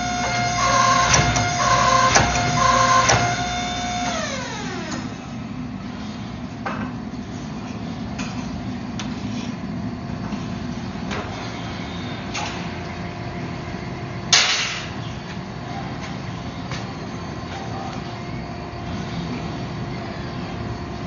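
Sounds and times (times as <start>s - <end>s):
shop machinery humming: 0.0s - 21.0s.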